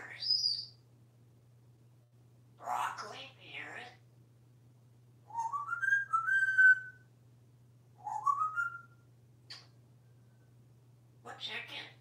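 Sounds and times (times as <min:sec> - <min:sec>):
parrot whistling: 0:05.3 - 0:07.0, 0:08.0 - 0:09.0.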